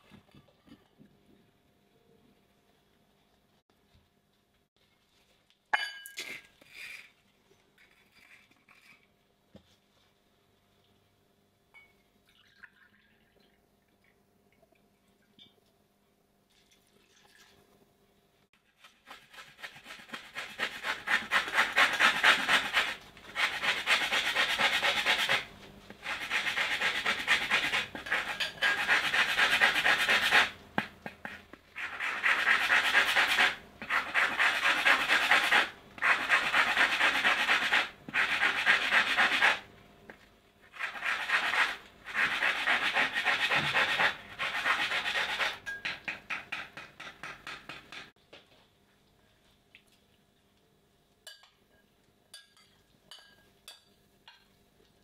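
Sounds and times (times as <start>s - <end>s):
peel grated on metal grater: 18.9s - 30.6s, 40.8s - 45.7s.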